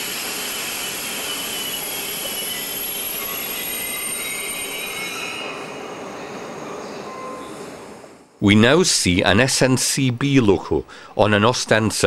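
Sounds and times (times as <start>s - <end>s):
train wheels squealing: 0.0s - 7.8s
train rolling noise: 0.0s - 8.5s.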